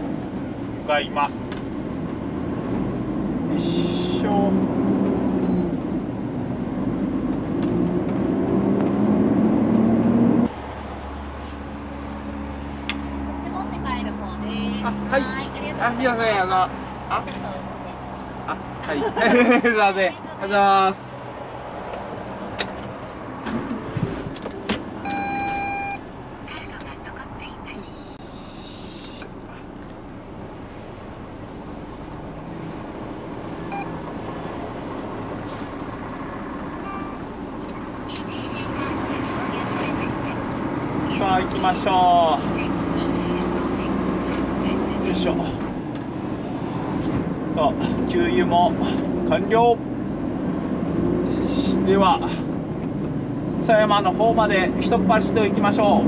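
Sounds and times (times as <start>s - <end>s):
truck diesel engine: 0.0s - 56.0s
short electronic beep: 25.0s - 26.0s.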